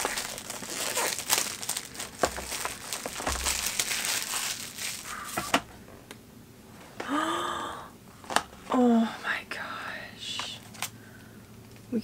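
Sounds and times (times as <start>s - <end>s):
plastic shrink-wrap crinkling: 0.0s - 5.4s.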